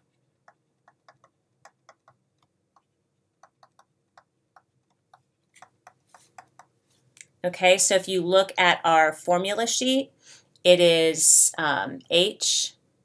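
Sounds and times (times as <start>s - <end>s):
stylus pen tapping on tablet: 0.4s - 6.7s.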